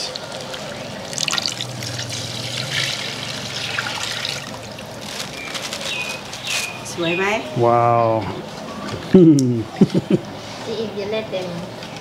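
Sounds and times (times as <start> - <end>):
liquid trickling into metal pot: 0.3 - 5.0.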